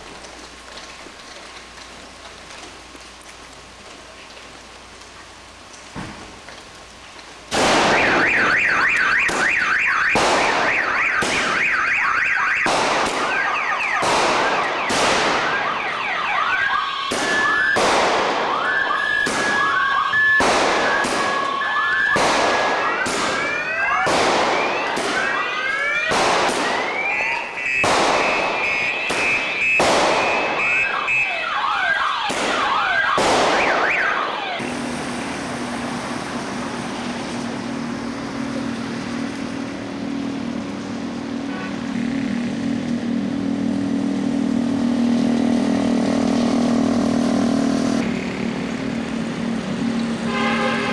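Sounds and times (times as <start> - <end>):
firecrackers banging: 0.0 - 42.0
car alarms wailing: 7.9 - 34.6.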